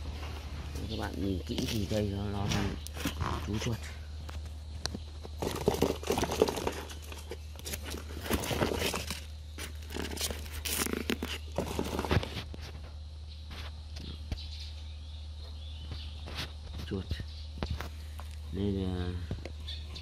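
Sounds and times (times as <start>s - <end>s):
cardboard and grass rustling: 0.0s - 14.7s.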